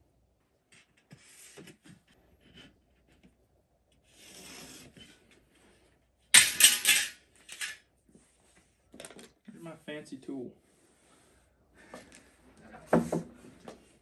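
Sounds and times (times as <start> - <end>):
metallic clatter: 6.4 - 7.8.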